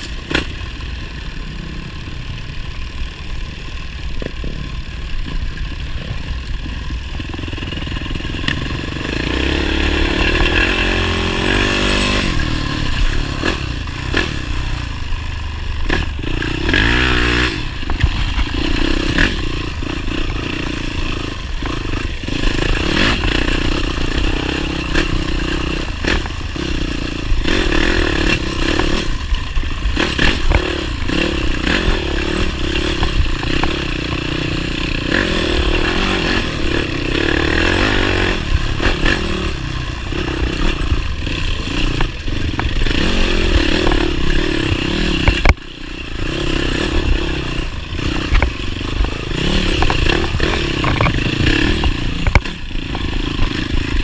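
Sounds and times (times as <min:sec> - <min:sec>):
motorcycle engine running: 0:00.0 - 0:54.0
knocks and clatter: 0:48.3 - 0:53.6.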